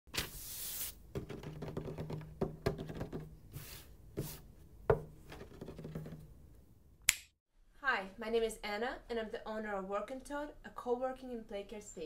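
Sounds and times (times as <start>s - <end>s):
paper rustling and sliding: 0.1s - 1.3s.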